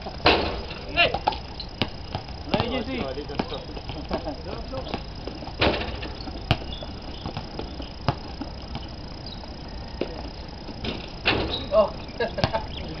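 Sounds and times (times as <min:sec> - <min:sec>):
faint high whine: 0:00.0 - 0:13.0
basketball bouncing on court: 0:00.2 - 0:04.2, 0:04.8 - 0:09.0, 0:12.4 - 0:12.7.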